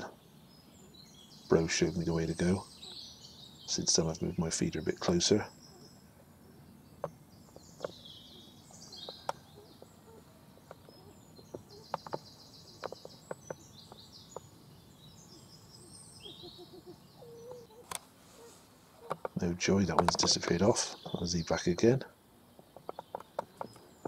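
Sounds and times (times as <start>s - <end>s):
songbirds singing: 0.0s - 24.0s
sharp clicks and taps: 19.1s - 20.4s.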